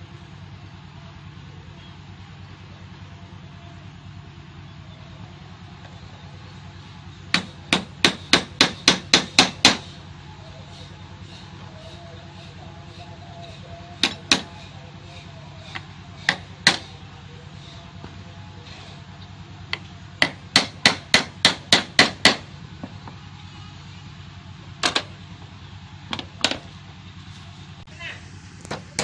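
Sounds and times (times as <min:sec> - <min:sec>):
hand hammer tapping: 0:14.0 - 0:14.5.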